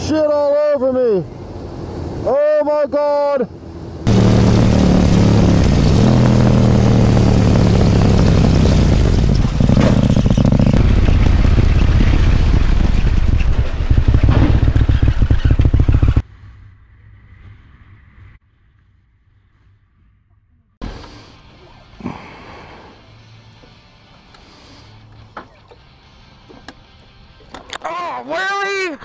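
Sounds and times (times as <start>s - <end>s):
motorcycle engine running: 4.1s - 16.2s.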